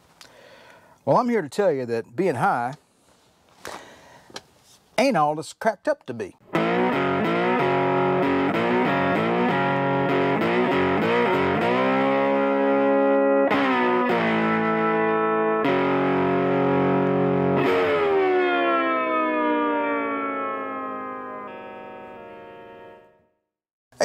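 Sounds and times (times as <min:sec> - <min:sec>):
distorted electric guitar: 0:06.5 - 0:23.3.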